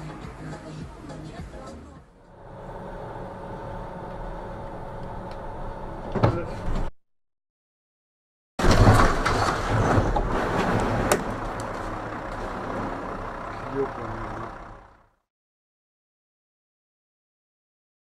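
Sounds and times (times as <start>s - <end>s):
road noise: 0.0s - 6.9s, 8.6s - 15.3s
bus crashing into metal fence: 8.6s - 13.0s
scraping rushing snow and debris: 8.6s - 13.2s.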